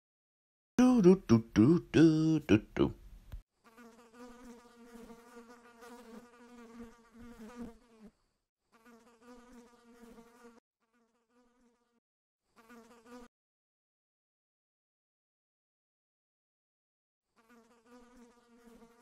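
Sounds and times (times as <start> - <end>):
flying insect buzzing: 3.6 - 13.3, 17.3 - 19.0.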